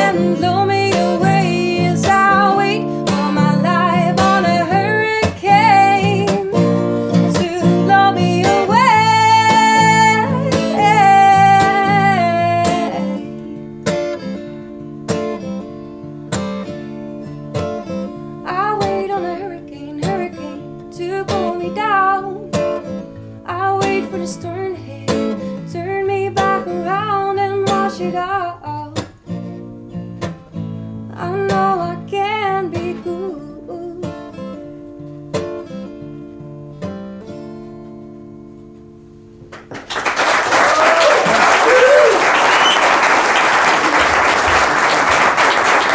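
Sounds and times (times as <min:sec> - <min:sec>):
woman singing: 0:00.0 - 0:13.6, 0:18.4 - 0:29.1, 0:31.1 - 0:34.4
acoustic guitar strumming: 0:00.0 - 0:39.7.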